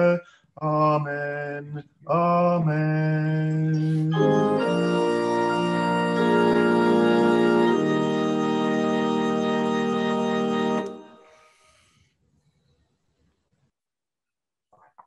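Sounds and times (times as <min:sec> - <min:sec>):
organ chords: 0:02.1 - 0:11.3.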